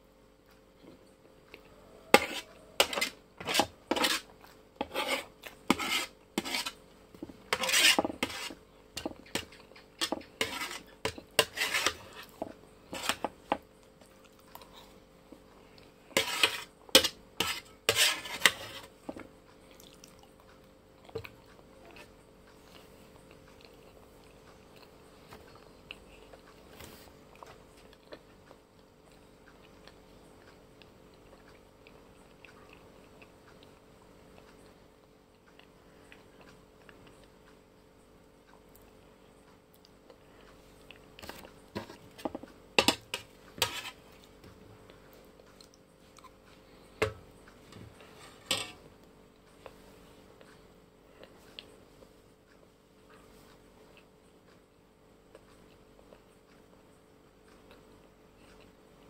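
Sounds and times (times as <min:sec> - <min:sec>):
metal spoon scraping a plate: 0:02.1 - 0:06.8, 0:07.5 - 0:13.4, 0:16.1 - 0:18.9, 0:41.2 - 0:44.0, 0:48.0 - 0:48.8.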